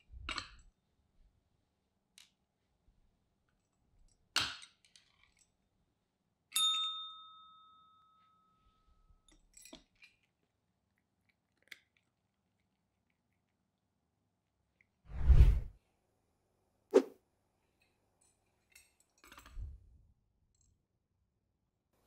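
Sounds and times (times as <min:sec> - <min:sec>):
small clicks and clatters: 0:03.5 - 0:05.7, 0:09.2 - 0:13.8, 0:17.6 - 0:19.8.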